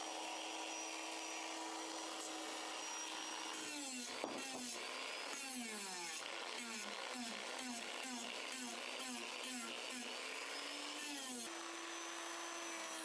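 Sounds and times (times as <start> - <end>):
rotary tool sanding wood: 0.1 - 13.0.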